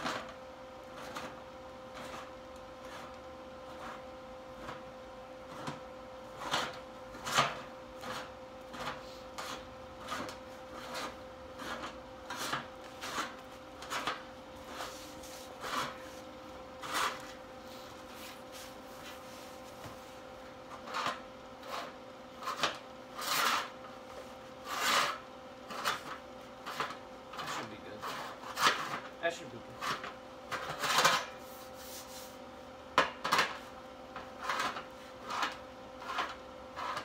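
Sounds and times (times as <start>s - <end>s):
metal being filed: 6.3s - 16.0s, 16.8s - 17.2s, 20.8s - 23.8s, 24.6s - 29.0s, 34.4s - 37.0s.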